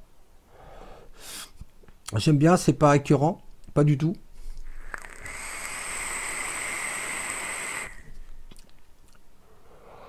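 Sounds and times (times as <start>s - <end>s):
vape hiss and sizzling coil: 4.6s - 8.2s.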